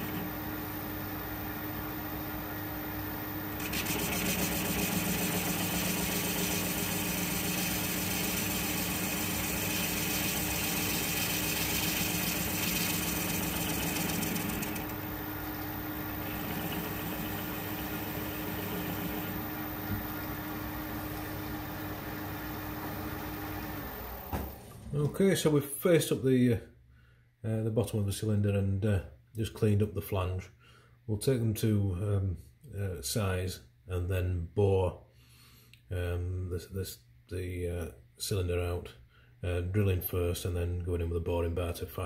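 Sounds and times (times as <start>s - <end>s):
lathe motor hum: 0.0s - 24.6s
lathe tool cutting metal: 3.6s - 20.6s.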